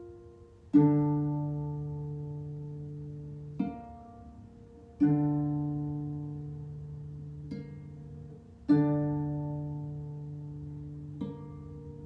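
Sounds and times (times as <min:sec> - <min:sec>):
harp chords: 0:00.0 - 0:12.0.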